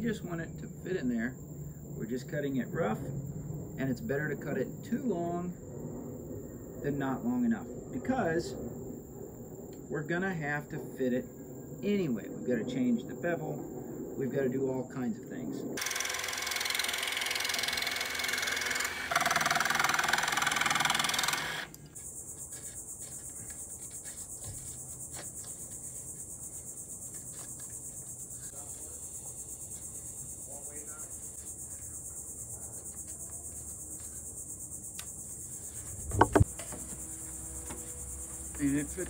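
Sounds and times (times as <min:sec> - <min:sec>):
insects droning: 0:00.0 - 0:39.0
jigsaw cutting plywood: 0:15.8 - 0:21.8
sharp knocks: 0:36.0 - 0:37.0.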